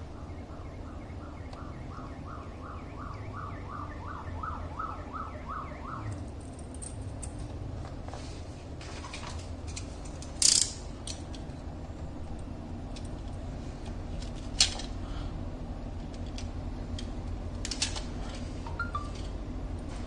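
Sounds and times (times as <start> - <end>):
steady low hum: 5.8 - 20.0.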